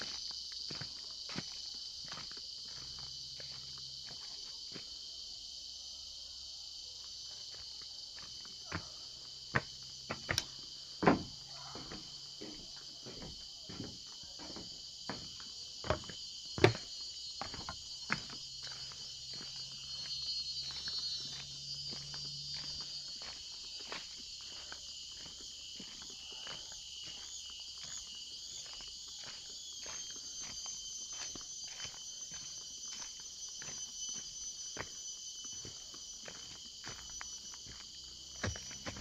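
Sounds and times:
insects chorus: 0:00.0 - 0:39.0.

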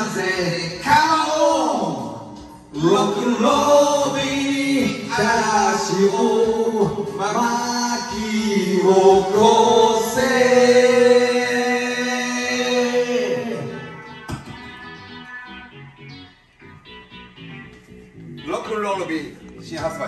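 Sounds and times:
man singing rock and roll: 0:00.0 - 0:14.2
karaoke backing track: 0:00.0 - 0:20.0.

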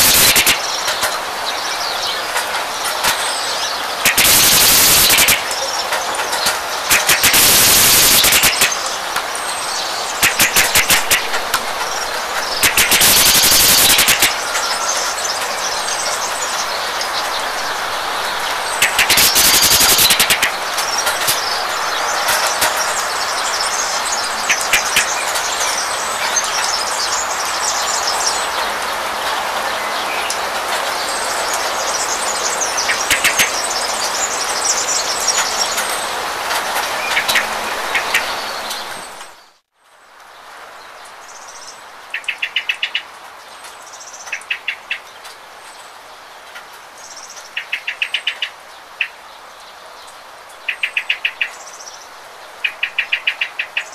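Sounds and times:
rapid clattering ticks: 0:00.0 - 0:01.2, 0:04.0 - 0:08.8, 0:10.2 - 0:14.7, 0:18.8 - 0:21.4, 0:24.4 - 0:25.7, 0:32.9 - 0:34.1
small birds chirping: 0:00.0 - 0:39.6
steady rain: 0:00.0 - 0:53.9.

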